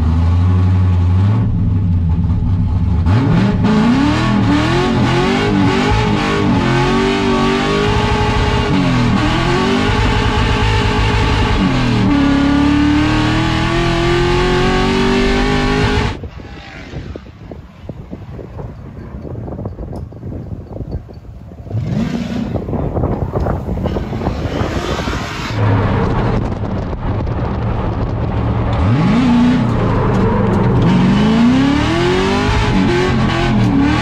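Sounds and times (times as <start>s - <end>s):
car engine revving hard: 3.0s - 16.2s, 21.7s - 22.8s, 23.8s - 34.0s
wind on microphone: 5.1s - 34.0s.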